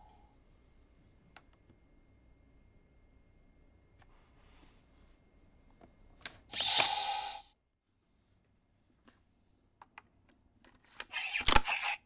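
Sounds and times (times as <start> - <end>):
toy electronic sound effect: 11.1 - 12.0.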